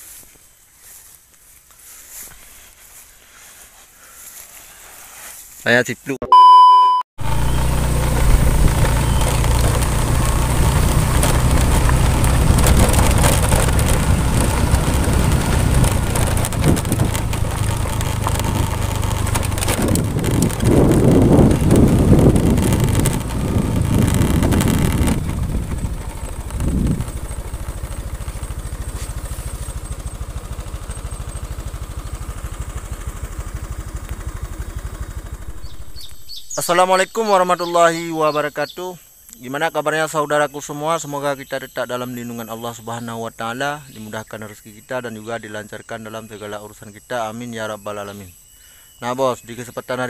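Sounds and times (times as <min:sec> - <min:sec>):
motorcycle engine running: 0:07.2 - 0:38.4.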